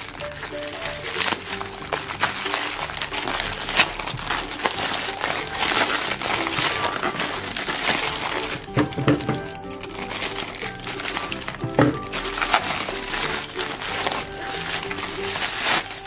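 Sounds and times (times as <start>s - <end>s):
light background music: 0.0s - 16.0s
plastic bag crinkling: 0.0s - 16.0s.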